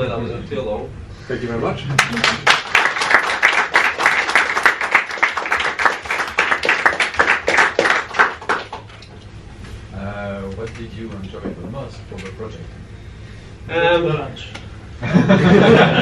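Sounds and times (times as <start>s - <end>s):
small group applauding: 1.9s - 9.1s.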